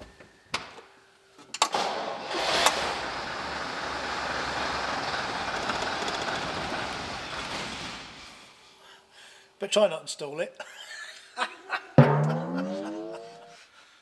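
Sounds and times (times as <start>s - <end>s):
bus diesel engine starting and running: 2.3s - 6.8s.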